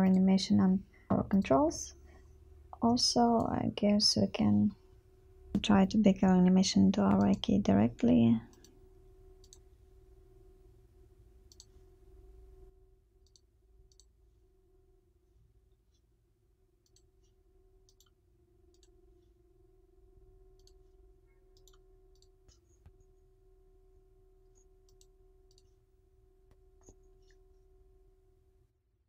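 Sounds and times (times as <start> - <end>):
faint electrical hum: 0.0 - 28.7
computer mouse clicks: 9.4 - 9.6, 11.5 - 11.8, 13.2 - 14.1, 16.8 - 17.1, 17.8 - 19.0, 20.6 - 20.8, 21.5 - 23.0, 24.8 - 25.7.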